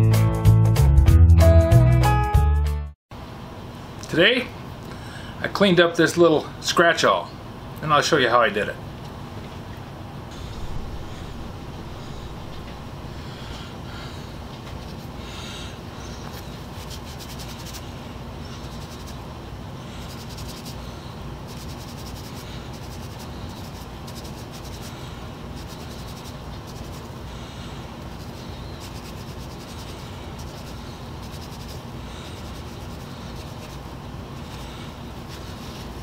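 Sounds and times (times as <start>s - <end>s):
low hum: 10.3s - 36.0s.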